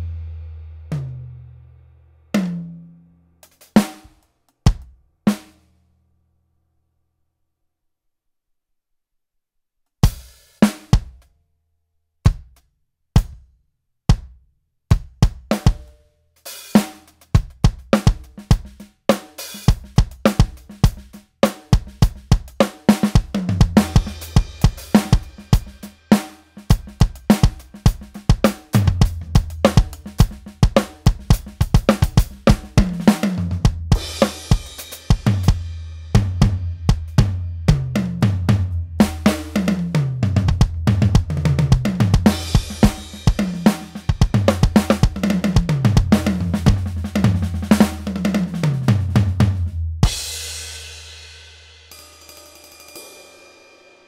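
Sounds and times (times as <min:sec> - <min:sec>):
electronic drum kit: 0:16.5 - 0:51.2
crashing cymbals: 0:23.8 - 0:28.1, 0:50.1 - 0:54.0.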